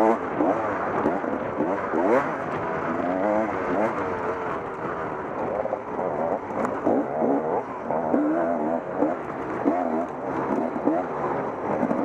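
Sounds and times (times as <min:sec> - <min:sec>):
dirt bike engine revving: 0:00.0 - 0:12.0.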